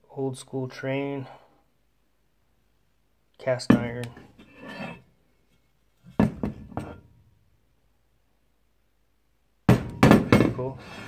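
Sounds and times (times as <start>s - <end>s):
cast iron clunking on table: 6.1s - 7.1s.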